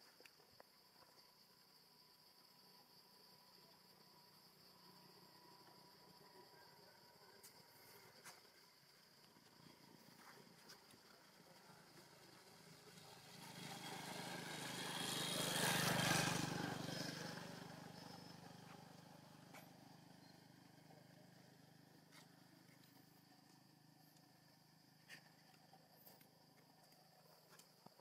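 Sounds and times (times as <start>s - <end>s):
faint vehicle engine passing by: 9.7s - 22.7s.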